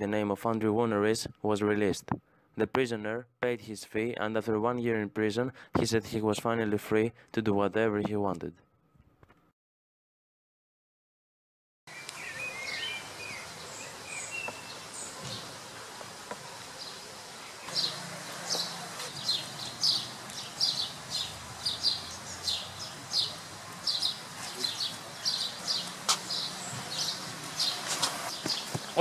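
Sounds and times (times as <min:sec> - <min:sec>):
birds chirping: 0:11.9 - 0:29.0.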